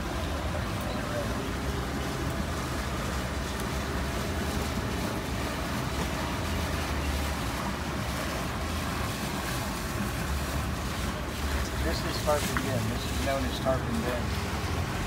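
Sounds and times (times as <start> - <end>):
motorboat engine drone: 0.0 - 15.0
water rushing: 0.0 - 15.0.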